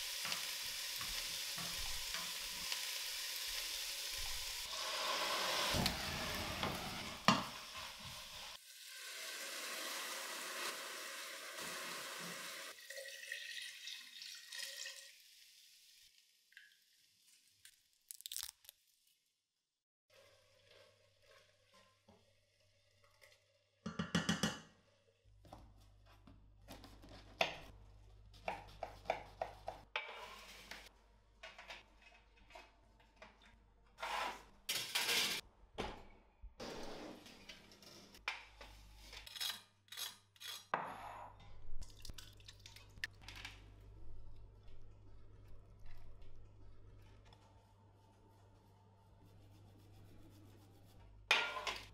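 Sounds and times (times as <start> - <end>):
metal kitchenware clinking: 51.3 - 51.9.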